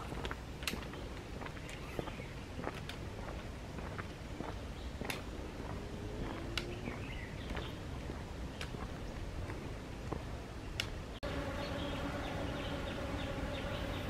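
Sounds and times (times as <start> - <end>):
footsteps on concrete: 0.0 - 11.0.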